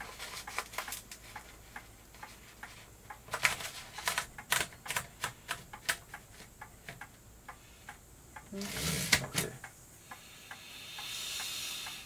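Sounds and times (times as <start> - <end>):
typewriter clicking: 3.2 - 7.0.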